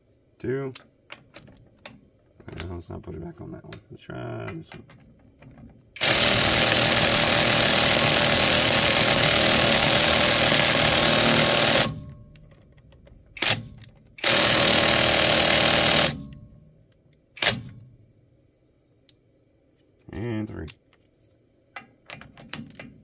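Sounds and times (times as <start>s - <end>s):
impact wrench hammering: 4.6s - 12.2s, 13.4s - 16.5s.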